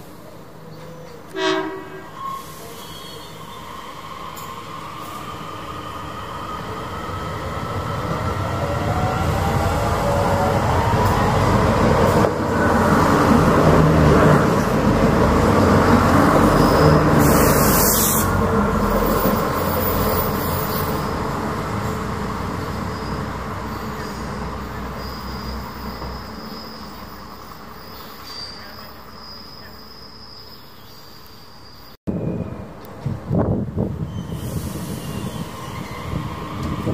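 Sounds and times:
train passing at speed: 0.0 - 36.9
high wheel squeal: 1.9 - 8.2, 16.2 - 30.8, 34.0 - 36.9
sharp hiss: 17.1 - 18.4.

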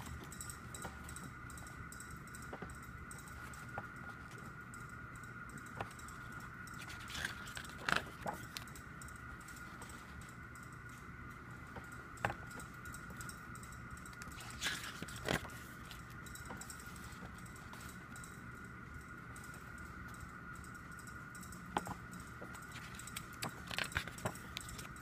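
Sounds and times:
faint high whine: 0.0 - 25.0
book pages rustling: 3.3 - 4.4, 5.7 - 10.3, 14.1 - 18.2, 21.8 - 25.0.

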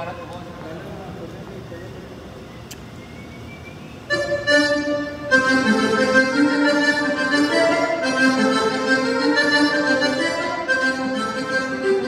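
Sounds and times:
accordion playing cumbia melody: 4.1 - 12.0.

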